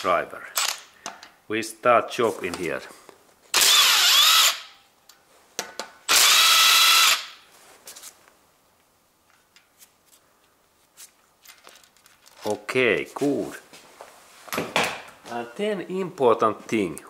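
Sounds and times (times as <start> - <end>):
impact driver bursts: 3.5 - 4.8, 6.1 - 7.4.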